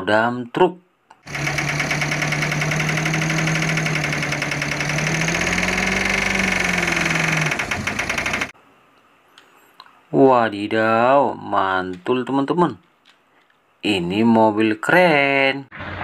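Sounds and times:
diesel engine clattering: 1.3s - 8.5s.

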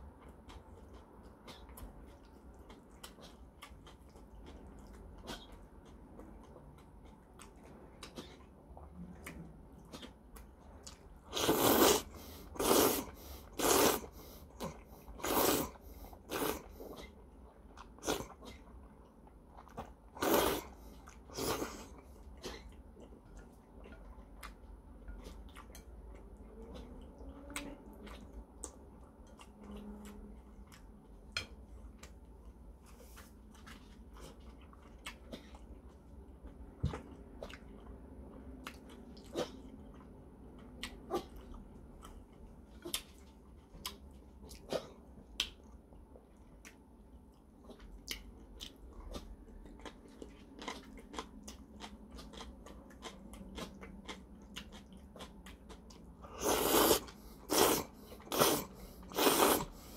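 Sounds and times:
chewing with wet mouth clicks: 0.0s - 59.9s
slurping noodles: 11.3s - 16.9s, 20.2s - 21.9s, 56.3s - 59.9s.

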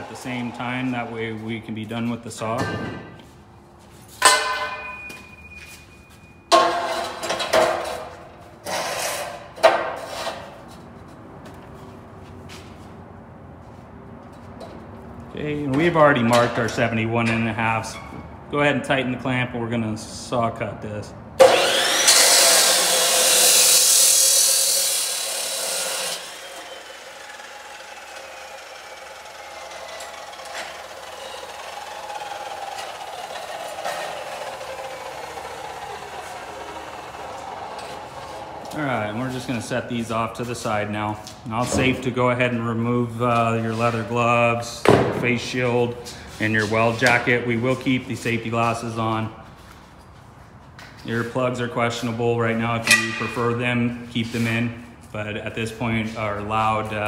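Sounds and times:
metal tubes clanking: 4.2s - 5.5s, 52.8s - 53.8s
chop saw grinding through metal: 6.5s - 10.5s, 21.4s - 39.6s, 52.8s - 53.6s
cut-off wheel spinning down: 21.4s - 39.6s.

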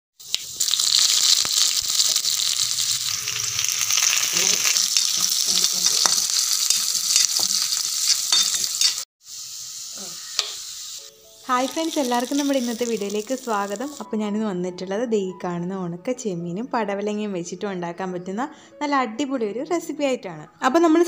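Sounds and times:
hot oil sizzling in pan: 0.2s - 14.1s.

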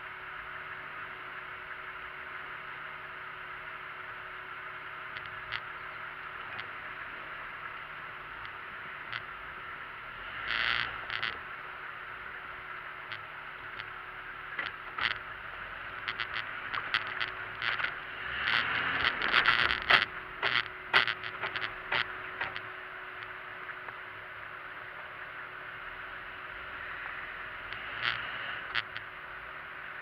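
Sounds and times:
vehicle knocking over rocks: 18.6s - 22.6s.

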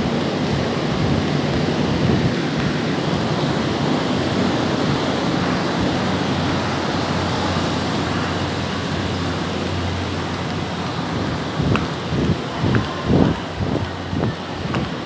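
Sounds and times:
steady rushing noise: 0.0s - 15.0s.

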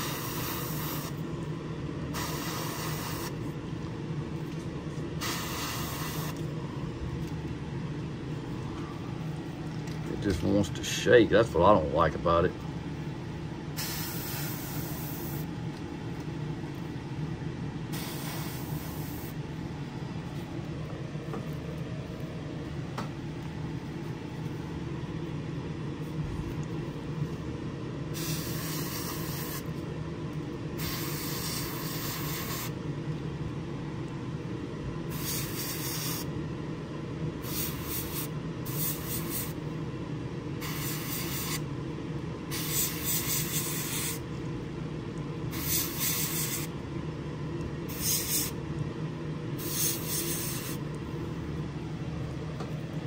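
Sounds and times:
airbrush spraying hiss: 0.0s - 1.2s, 2.1s - 3.4s, 5.2s - 6.4s, 13.8s - 15.5s, 17.9s - 19.4s, 28.1s - 29.7s, 30.8s - 32.7s, 35.1s - 36.3s, 37.4s - 39.6s, 40.6s - 41.6s, 42.5s - 44.2s, 45.5s - 46.7s, 47.9s - 48.6s, 49.6s - 50.8s
fan droning: 0.0s - 53.0s.

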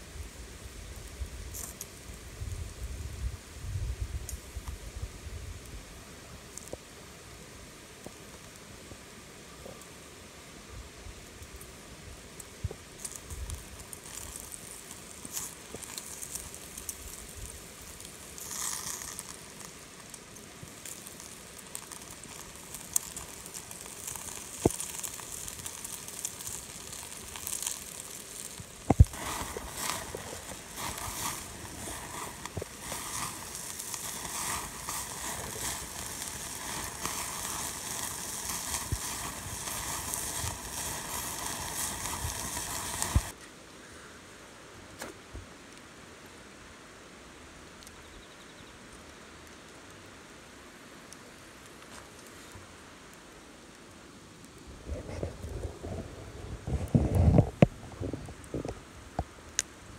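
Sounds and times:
meat fat sizzling and crackling: 0.0s - 9.9s, 11.2s - 43.4s
sharp pops and snaps: 18.0s - 43.4s.

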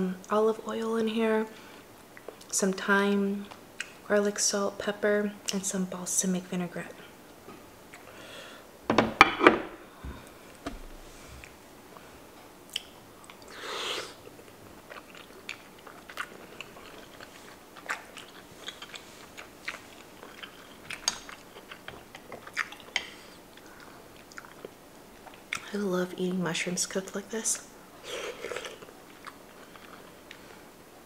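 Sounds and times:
wet chewing: 14.2s - 25.7s, 28.1s - 30.5s.

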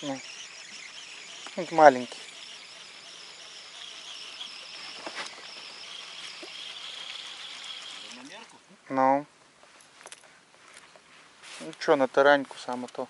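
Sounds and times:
insect chorus chirring: 0.0s - 8.4s.

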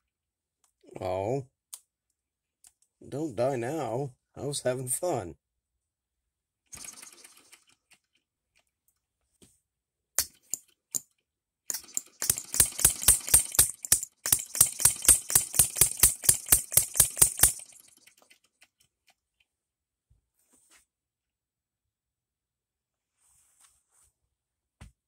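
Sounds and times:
small engine popping: 6.7s - 8.1s, 11.7s - 18.8s.

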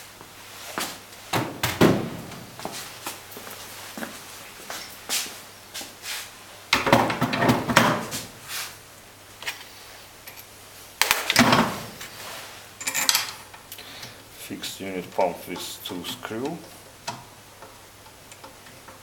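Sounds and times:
metal parts knocking and scraping: 12.8s - 13.6s.

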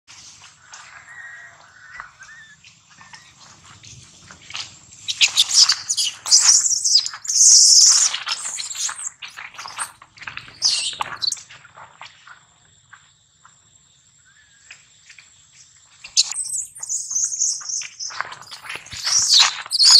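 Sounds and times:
baby monkey shrieking: 0.9s - 3.4s.

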